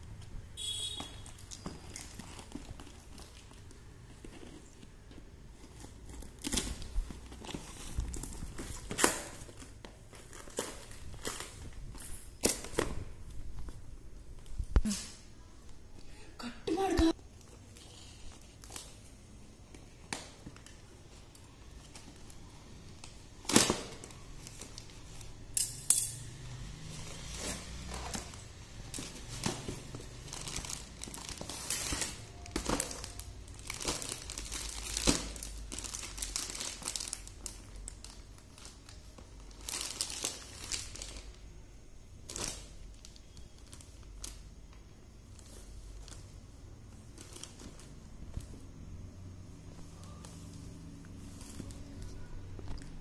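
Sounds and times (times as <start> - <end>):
plastic wrapping crinkling: 0.6 - 14.6, 26.9 - 41.4, 42.2 - 48.6.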